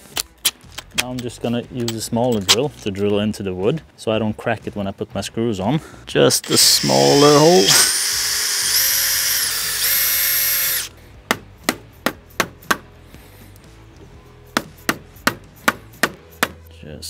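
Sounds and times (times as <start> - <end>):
cordless drill whining: 6.4 - 10.9.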